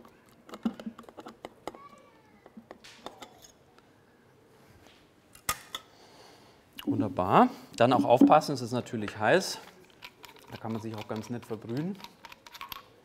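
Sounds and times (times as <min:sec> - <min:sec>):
utensils scraping a pot: 0:09.0 - 0:12.8.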